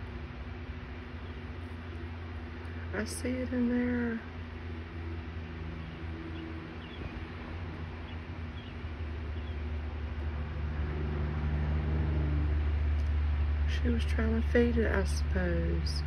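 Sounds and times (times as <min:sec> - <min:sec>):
low mechanical drone: 0:00.0 - 0:16.0.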